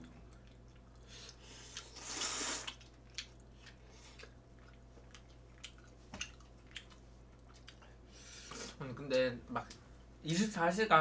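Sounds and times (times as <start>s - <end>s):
wet chewing: 0.2s - 8.0s
noodles slurped: 1.3s - 2.9s.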